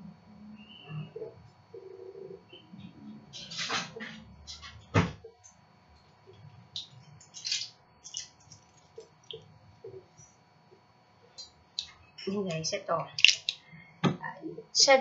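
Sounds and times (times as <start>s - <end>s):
person handling small objects: 6.8s - 9.4s, 13.2s - 13.6s.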